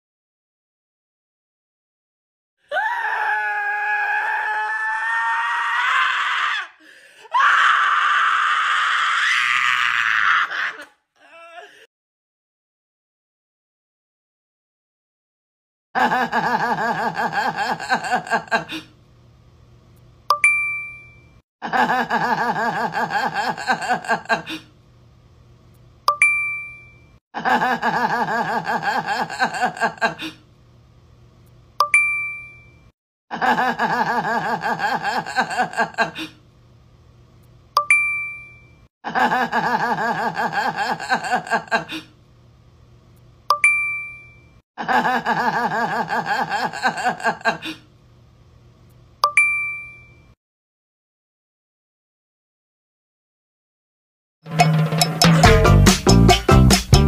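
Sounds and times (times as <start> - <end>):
pulsing laughter: 16.0 - 18.9, 21.6 - 24.7, 27.4 - 30.4, 33.3 - 36.4, 39.0 - 42.1, 44.8 - 47.8
bright ding: 20.3 - 21.4, 26.1 - 27.2, 31.8 - 32.9, 37.8 - 38.8, 43.5 - 44.6, 49.2 - 50.4.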